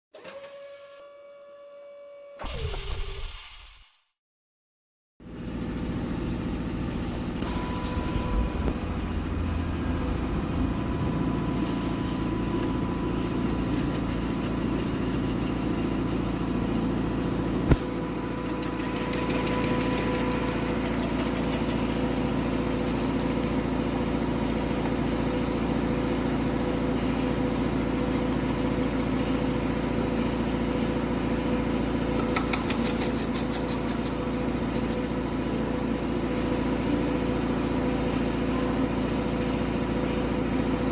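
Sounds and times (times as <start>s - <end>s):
machine whine: 5.5s - 40.9s
drilling machine humming: 6.9s - 37.9s.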